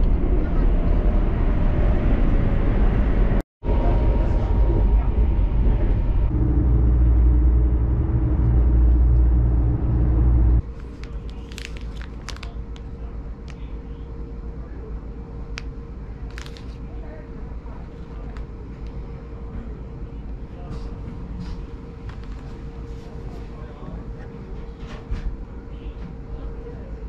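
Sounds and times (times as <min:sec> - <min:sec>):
train running rumble: 0:00.0 - 0:13.6
faint cabin hum: 0:00.0 - 0:27.0
plastic packet crinkling: 0:10.7 - 0:12.8, 0:16.3 - 0:16.8.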